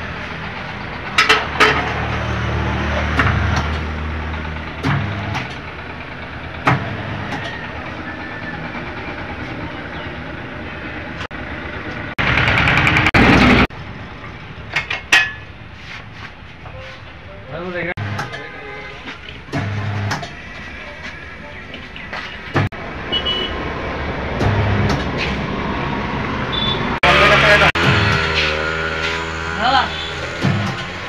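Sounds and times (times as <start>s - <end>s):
metal tools clanking on rim: 14.7s - 15.5s.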